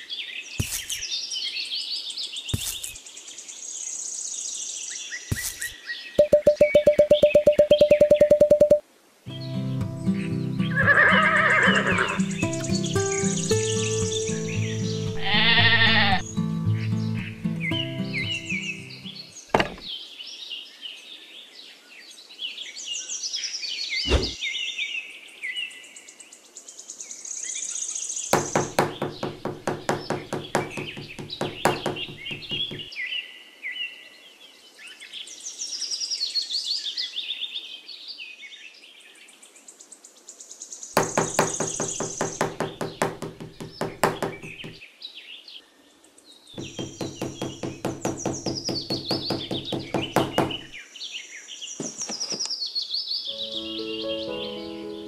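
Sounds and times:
birds chirping: 0.0s - 21.0s, 23.8s - 24.7s, 27.3s - 33.1s, 40.7s - 45.0s, 46.0s - 55.0s
small hammer tapping wooden posts: 5.3s - 8.8s, 28.4s - 32.9s, 41.0s - 44.8s, 46.6s - 50.8s.

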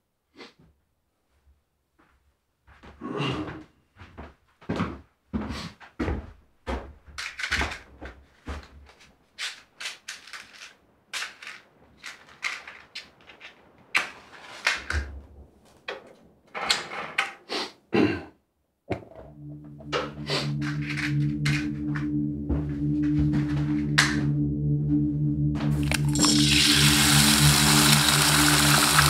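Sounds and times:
objects knocking and clattering: 18.9s - 20.0s
low ringing musical tone: 19.2s - 28.8s.

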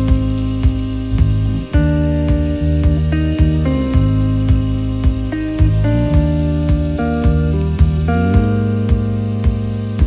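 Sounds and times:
background music with chords and beat: 0.0s - 10.0s.

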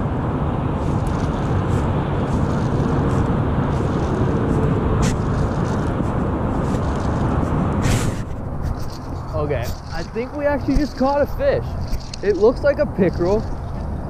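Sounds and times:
wind buffeting microphone: 0.0s - 14.0s
fishing reel cranking: 2.3s - 4.4s, 5.1s - 5.9s, 6.6s - 7.3s, 11.6s - 13.9s.

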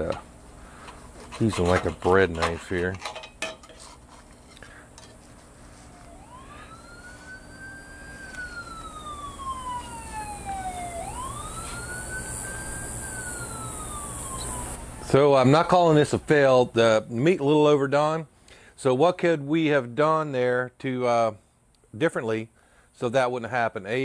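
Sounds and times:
faint knife scrapes: 3.6s - 5.5s
siren wailing: 5.8s - 15.2s.

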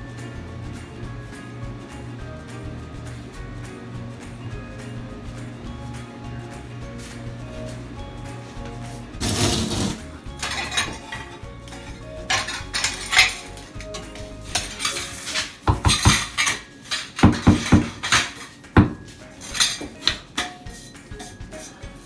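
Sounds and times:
ceramic tiles clinking: 8.7s - 22.0s.

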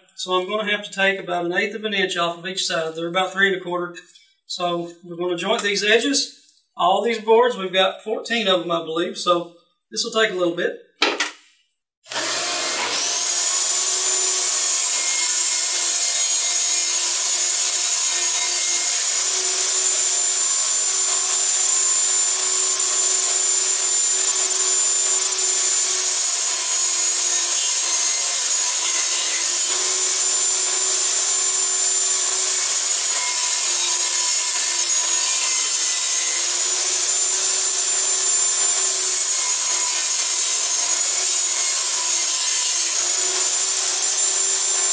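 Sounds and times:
table saw whining: 12.1s - 44.9s.

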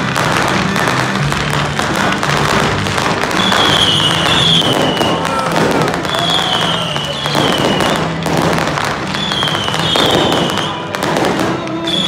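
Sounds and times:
fireworks crackling and popping: 0.0s - 12.0s
falling firework whistles: 3.2s - 8.2s, 9.0s - 12.0s.

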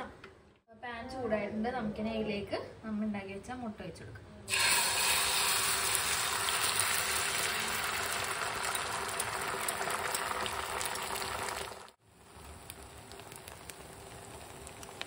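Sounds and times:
egg sizzling in hot oil: 4.5s - 15.0s.

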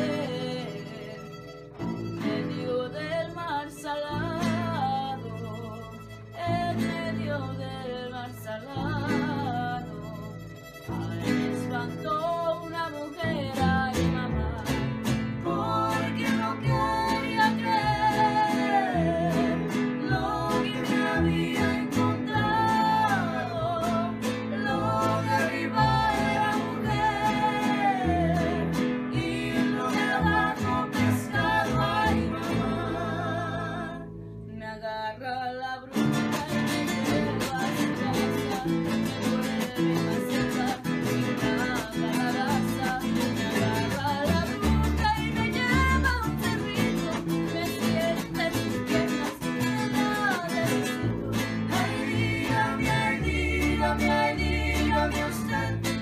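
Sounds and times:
guitar accompaniment: 0.0s - 56.0s
person singing: 0.0s - 56.0s.

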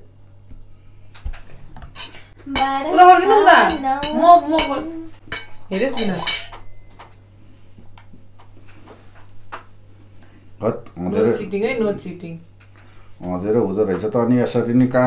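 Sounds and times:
forks clinking on plates: 2.0s - 7.1s.

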